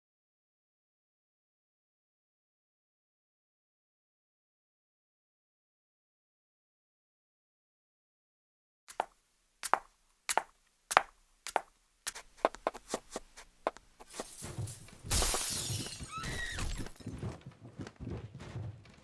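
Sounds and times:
fight thuds and bangs: 14.0s - 19.0s
crash with something breaking: 14.2s - 17.2s.

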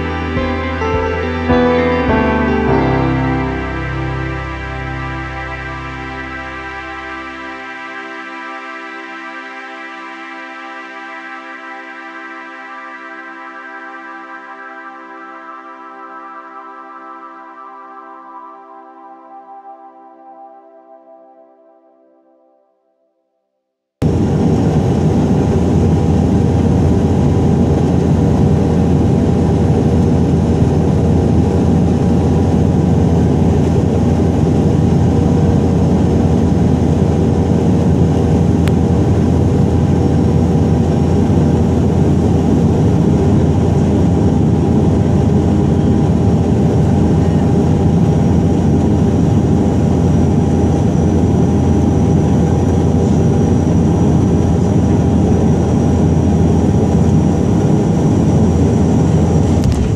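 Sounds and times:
turboprop engine drone in cabin: 24.0s - 59.9s.

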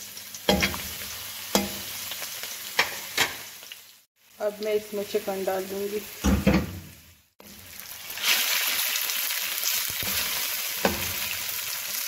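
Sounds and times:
chicken frying in hot oil: 0.0s - 12.0s
metal spatula knocking on pan: 0.5s - 0.9s.

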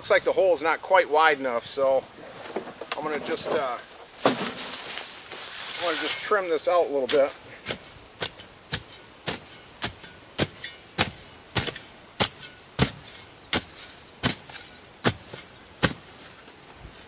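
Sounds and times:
spade chopping into dirt: 4.2s - 4.9s, 7.0s - 16.2s.

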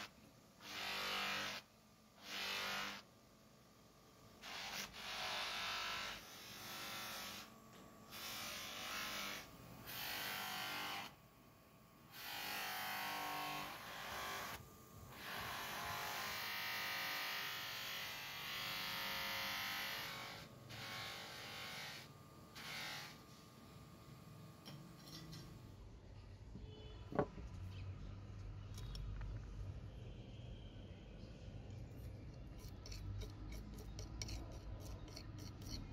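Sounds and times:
buffing wheel rubbing metal: 32.0s - 35.9s.

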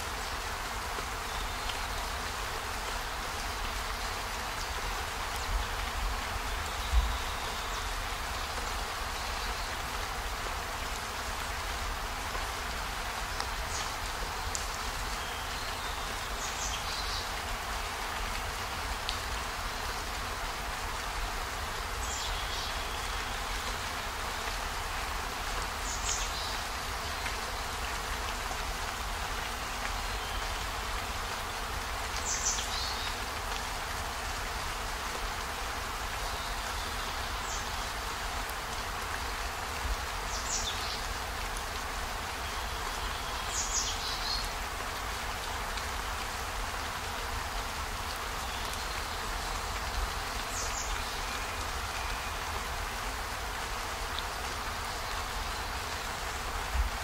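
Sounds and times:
rain hiss: 0.0s - 57.0s.

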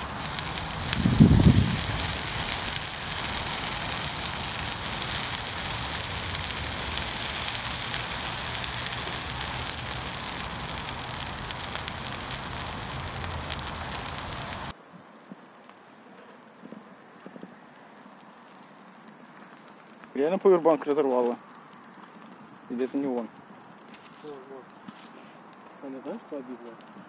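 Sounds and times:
small crackles: 0.0s - 14.8s, 16.6s - 27.0s
water sizzling on burning matches: 0.0s - 14.8s.

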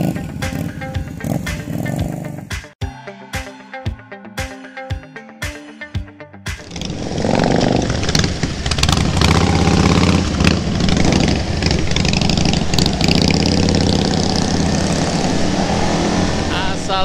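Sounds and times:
motorcycle engines running: 0.0s - 2.5s, 6.6s - 17.0s.

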